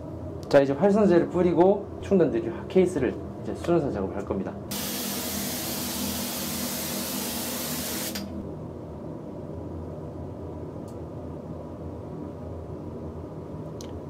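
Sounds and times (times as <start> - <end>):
low steady hum: 0.0 - 6.7, 8.3 - 14.0
spray gun hissing: 4.7 - 8.3.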